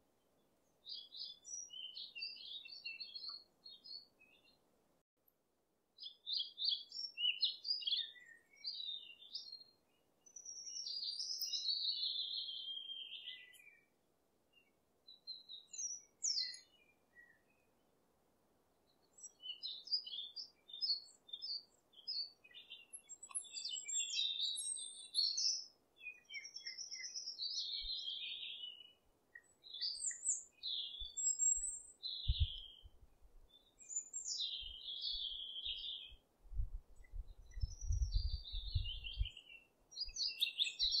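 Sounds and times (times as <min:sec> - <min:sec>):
birds chirping and singing: 0:00.9 - 0:04.5, 0:10.4 - 0:13.8, 0:15.4 - 0:16.8, 0:19.2 - 0:32.9, 0:33.6 - 0:36.2, 0:37.0 - 0:41.0.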